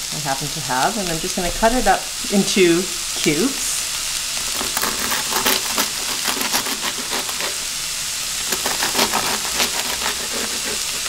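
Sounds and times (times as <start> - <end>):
onions sizzling in pan: 0.0 - 11.0
knife crunching through toast: 4.4 - 7.8, 8.4 - 11.0.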